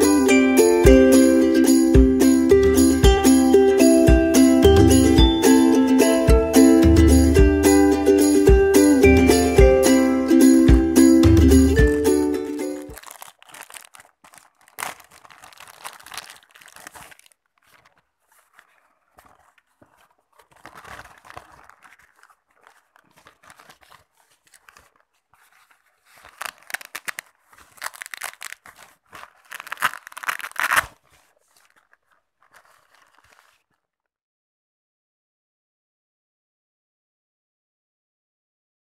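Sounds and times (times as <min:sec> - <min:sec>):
nylon wallet rustling: 0:11.6 - 0:33.9
plastic bag crinkling: 0:11.7 - 0:34.0
velcro ripping: 0:11.8 - 0:33.9.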